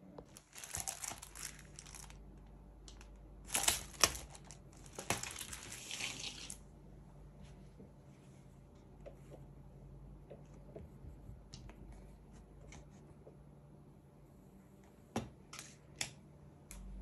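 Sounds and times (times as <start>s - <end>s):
packaging crinkling and rustling: 0.2s - 6.6s.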